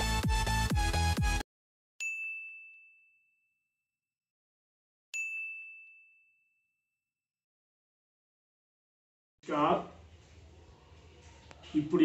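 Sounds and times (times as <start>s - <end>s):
electronic dance music: 0.0s - 1.4s
bright ding chimes: 2.0s - 3.5s, 5.2s - 6.7s.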